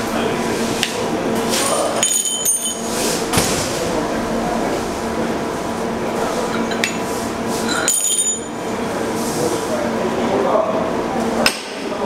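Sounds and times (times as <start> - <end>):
steady low hum: 0.0 - 12.0
metal tool clinking on rail: 2.0 - 2.8, 7.7 - 8.5.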